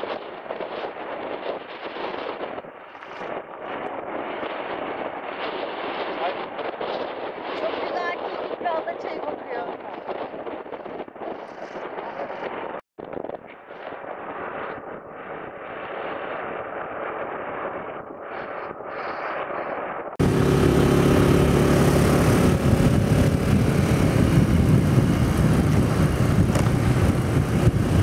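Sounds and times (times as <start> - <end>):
wind rushing past: 0.0 - 28.0
motorbike engine running: 20.2 - 28.0.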